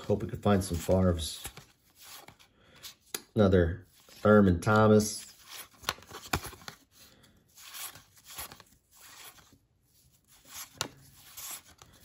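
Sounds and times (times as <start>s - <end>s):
cards sliding with papery swishes: 0.8s - 3.2s, 5.2s - 12.0s.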